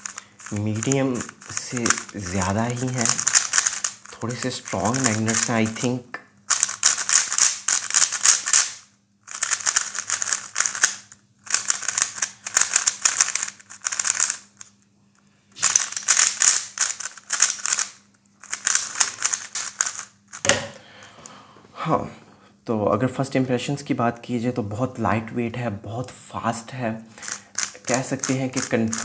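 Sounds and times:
speed cube clacking: 0.0 - 5.9, 6.5 - 14.7, 15.6 - 20.5, 27.2 - 29.0.

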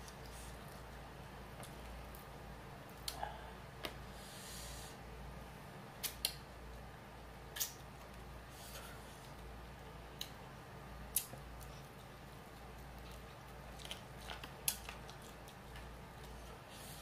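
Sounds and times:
lip smacks while eating: 11.1 - 12.0.

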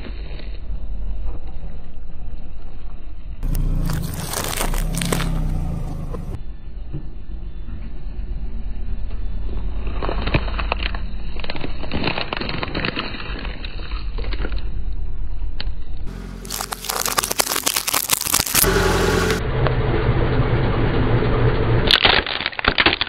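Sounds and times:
low steady rumble: 1.2 - 10.1, 14.8 - 21.9
plastic packaging crinkling: 3.4 - 5.5, 10.3 - 14.4, 16.1 - 19.4
tyre crushing plastic bottles: 3.4 - 5.5, 16.3 - 18.7, 21.9 - 23.0.

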